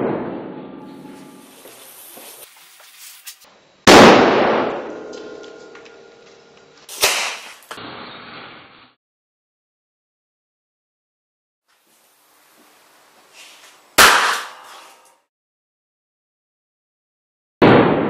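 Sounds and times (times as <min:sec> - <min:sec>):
explosive bangs: 0:00.0 - 0:01.5, 0:03.9 - 0:05.7, 0:17.6 - 0:18.0.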